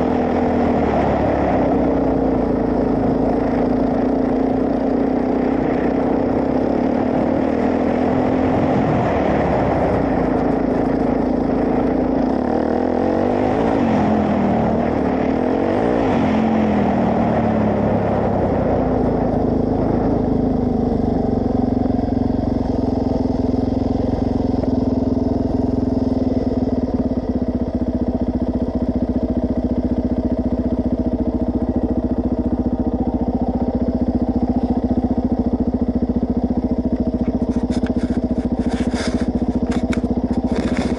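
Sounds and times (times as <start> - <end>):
motorcycle engine: 0.0 - 40.9
wind rushing while riding: 0.0 - 40.9.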